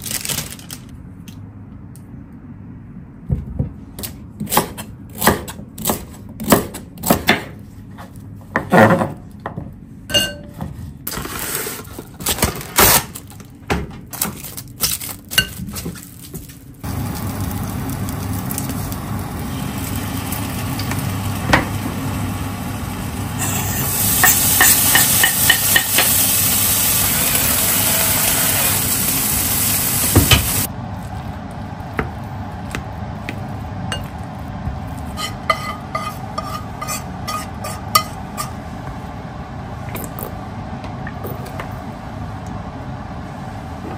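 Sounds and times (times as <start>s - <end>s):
knife chopping on cutting board: 4.0s - 7.6s
bacon sizzling in frying pan: 16.8s - 30.7s
spatula scraping glass bowl: 35.2s - 38.5s.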